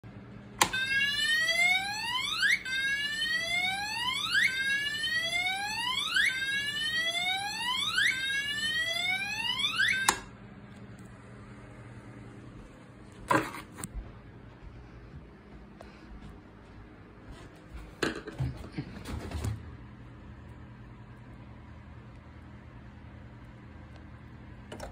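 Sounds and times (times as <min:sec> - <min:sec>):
alarm horn whooping: 0:00.6 - 0:10.3.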